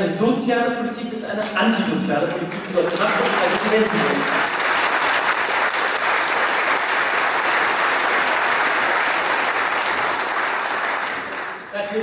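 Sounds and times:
audience applauding: 2.3s - 11.7s.

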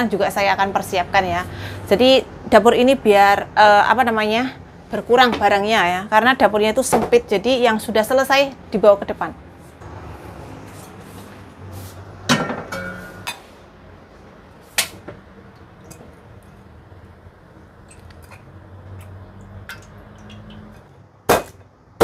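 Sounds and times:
low steady hum: 11.4s - 20.9s.

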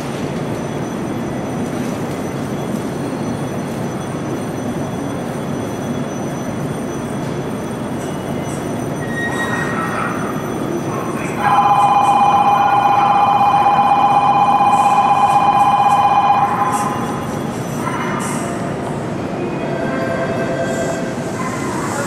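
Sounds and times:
electric train rumbling: 0.0s - 22.0s
electronic ringing: 10.3s - 17.8s.

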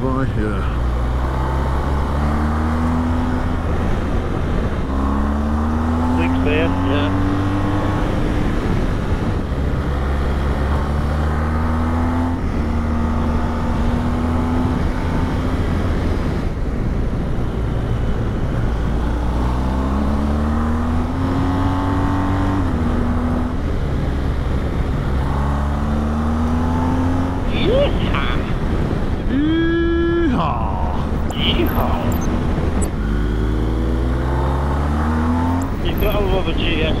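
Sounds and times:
motorcycle engine at road speed: 0.0s - 37.0s
wind rushing: 17.7s - 37.0s.

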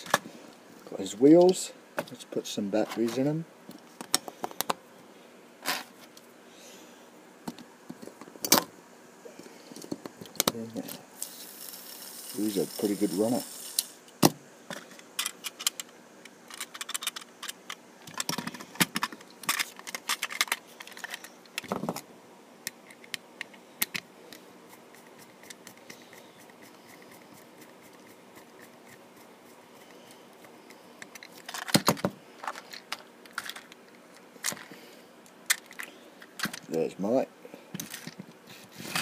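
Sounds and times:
plastic toy train clicking: 16.5s - 21.3s.

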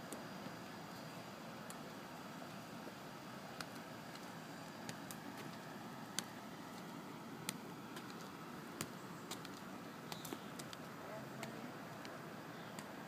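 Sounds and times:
steady outdoor hiss: 0.0s - 13.0s
footsteps on concrete: 3.6s - 12.1s.

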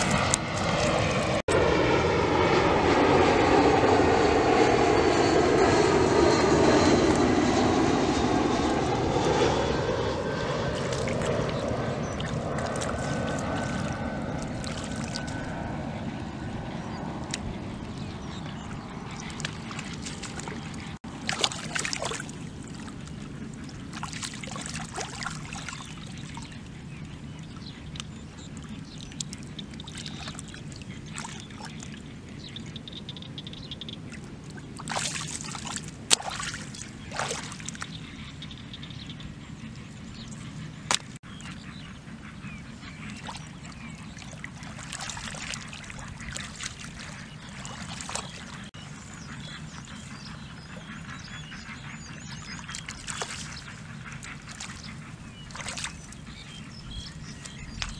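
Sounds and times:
steady low hum: 0.0s - 57.9s
hands splashing in muddy water: 12.2s - 14.0s, 19.4s - 22.3s, 34.8s - 37.8s, 44.7s - 48.4s, 55.5s - 56.0s
sharp slap on water: 36.1s - 36.6s.

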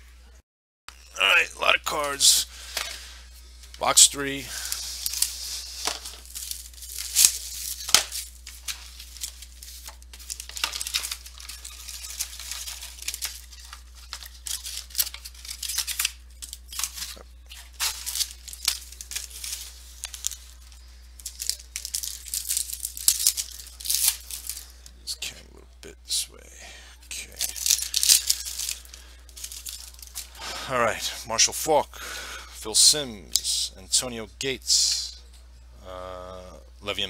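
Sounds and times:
low electrical hum: 0.0s - 37.0s
card packs tearing: 1.9s - 24.9s, 27.1s - 31.1s.

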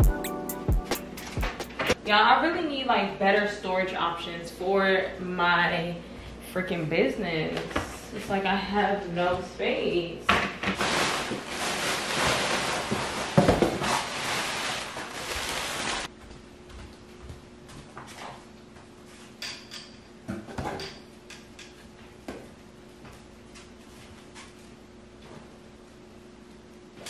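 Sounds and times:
packing material rustling: 10.8s - 16.1s.

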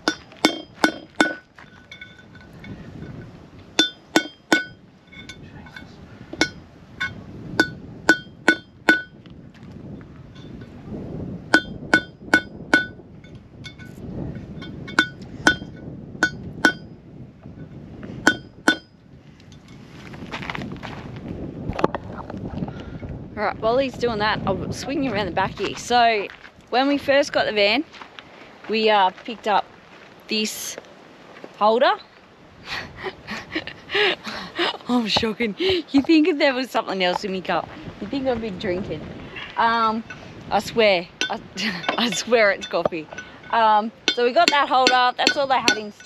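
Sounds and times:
hammer striking metal punch: 0.0s - 2.2s, 3.8s - 5.4s, 6.4s - 9.2s, 11.5s - 13.0s, 14.6s - 16.9s, 18.2s - 18.9s.

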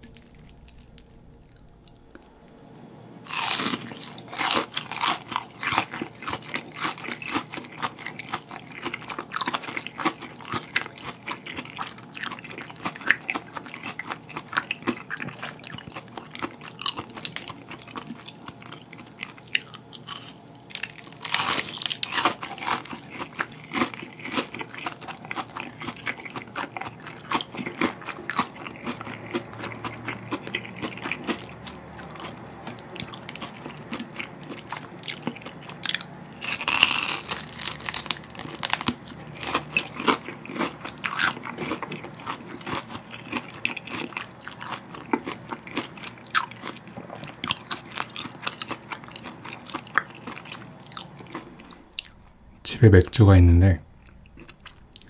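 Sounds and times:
crunching fried prawns: 3.3s - 52.5s, 53.9s - 55.0s.

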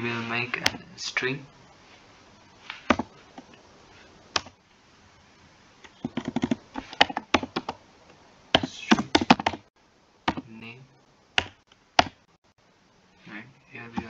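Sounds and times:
typing on computer keyboard: 6.0s - 7.8s.

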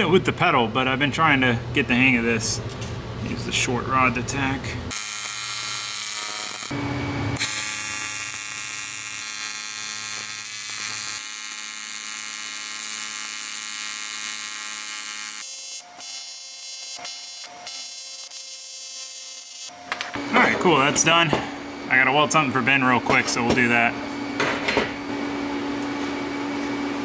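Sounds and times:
welding arc buzzing: 4.3s - 20.9s.

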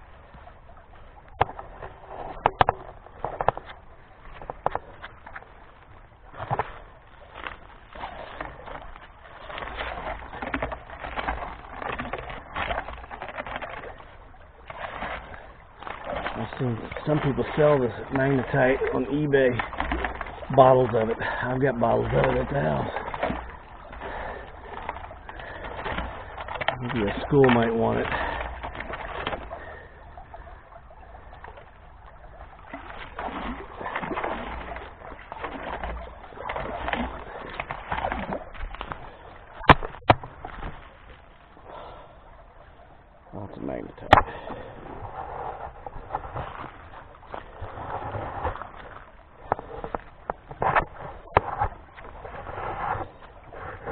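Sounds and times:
water splashing: 0.0s - 53.9s
gravel scraping: 15.4s - 29.8s, 43.4s - 53.9s.

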